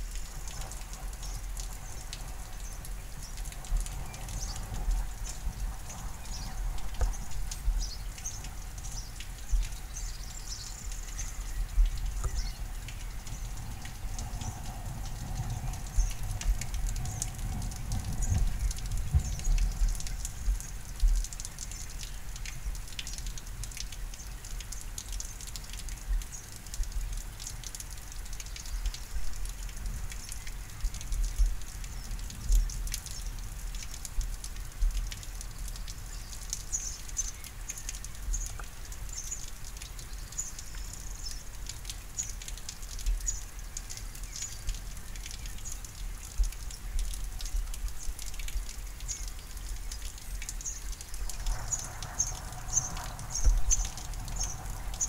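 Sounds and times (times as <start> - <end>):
rain drops pattering: 0.0 - 55.0
low thunder rumble: 11.4 - 21.2, 51.2 - 55.0.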